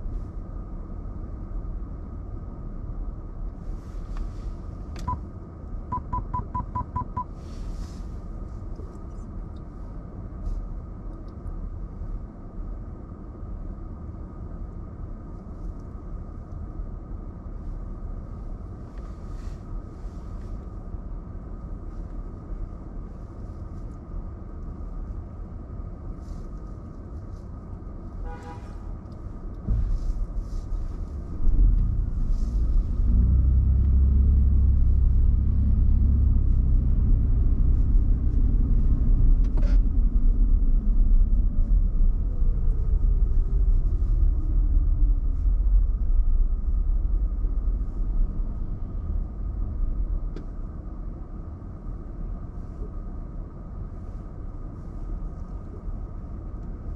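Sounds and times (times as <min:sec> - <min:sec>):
car engine and road rumble: 0:00.0 - 0:56.9.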